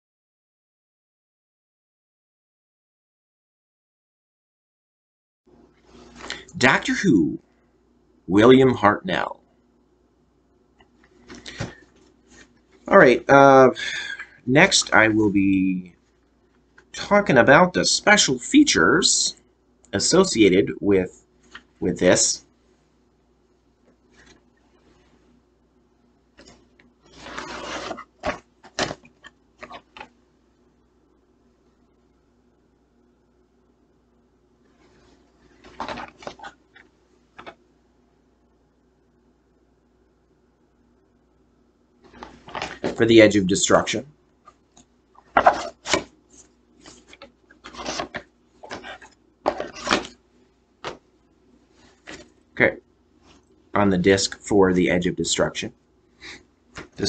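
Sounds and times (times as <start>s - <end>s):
plastic case sliding: 26.4s - 30.1s, 35.6s - 36.6s, 42.1s - 43.0s, 45.2s - 46.1s, 46.8s - 50.2s.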